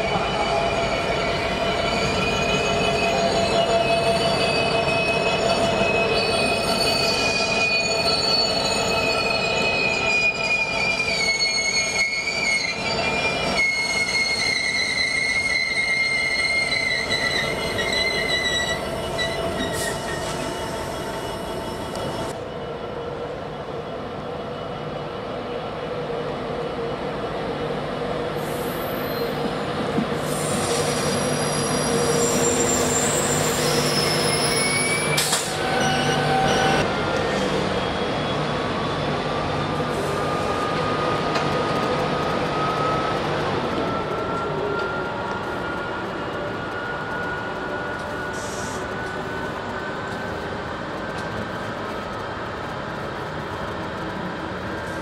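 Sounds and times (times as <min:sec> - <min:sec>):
high wheel squeal: 0:00.0 - 0:22.4, 0:30.2 - 0:41.3.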